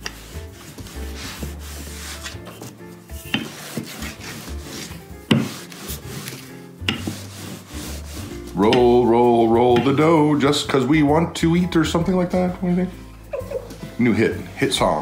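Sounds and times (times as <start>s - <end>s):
rolling pin rubbing dough: 0.0s - 11.1s.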